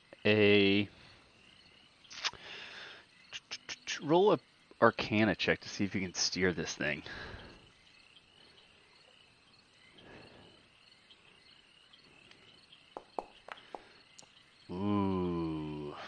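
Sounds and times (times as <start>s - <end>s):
insect chirping: 0.0s - 16.0s.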